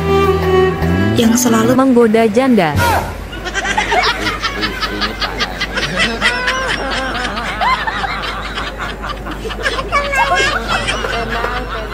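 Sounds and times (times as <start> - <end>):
high-pitched giggling: 8.7 - 11.9.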